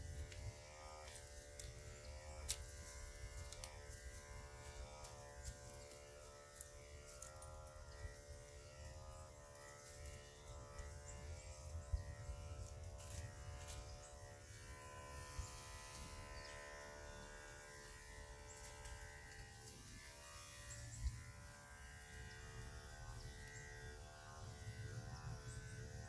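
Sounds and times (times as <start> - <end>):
grooming tool motor whining: 0.0 - 26.0.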